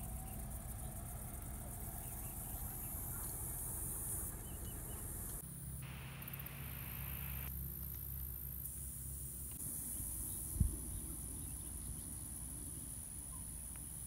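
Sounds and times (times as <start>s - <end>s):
crickets trilling: 0.0s - 14.0s.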